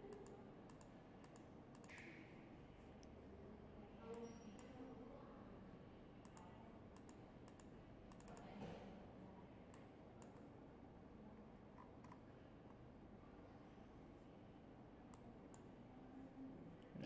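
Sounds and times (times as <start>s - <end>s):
computer mouse clicks: 0.1s - 2.2s, 6.2s - 8.6s, 9.7s - 10.5s.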